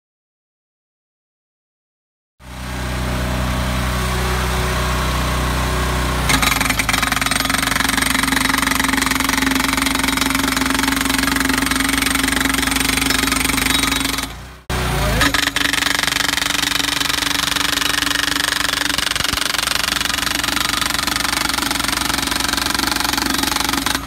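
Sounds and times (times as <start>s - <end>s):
hydraulic power unit engine: 2.4s - 24.0s
post driver hammering: 15.2s - 24.0s.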